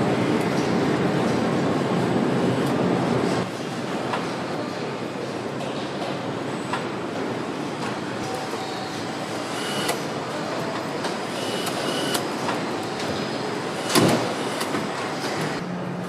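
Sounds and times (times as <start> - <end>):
assembly-line machinery din: 9.0 - 10.1, 11.2 - 15.6.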